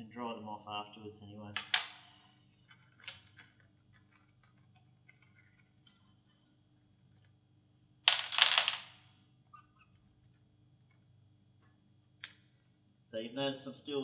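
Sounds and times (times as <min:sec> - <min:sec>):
small metal parts clinking: 0:08.1 - 0:09.0.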